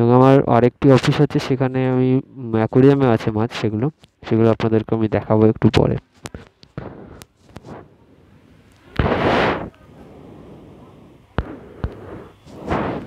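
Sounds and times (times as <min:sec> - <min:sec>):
phone handling clicks and taps: 0:06.2 - 0:07.6.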